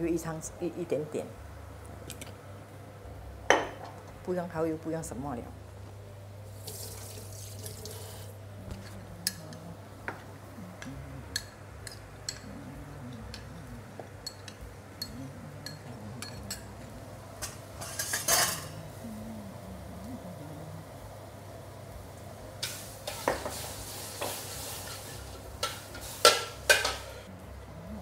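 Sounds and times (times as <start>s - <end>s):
steady low hum: 0.0s - 6.7s, 7.8s - 28.0s
liquid pouring hiss: 6.5s - 8.4s
spoon clinking against cookware: 11.3s - 12.5s, 14.2s - 16.8s.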